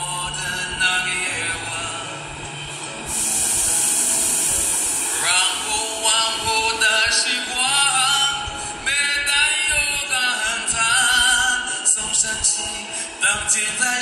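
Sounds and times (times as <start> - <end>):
man singing into microphone: 0.0 - 2.3, 5.2 - 14.0.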